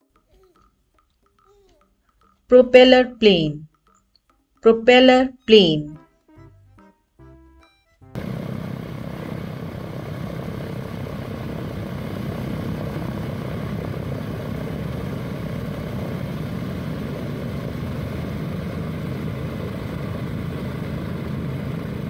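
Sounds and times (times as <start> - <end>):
propeller plane engines running: 8.2 - 22.0.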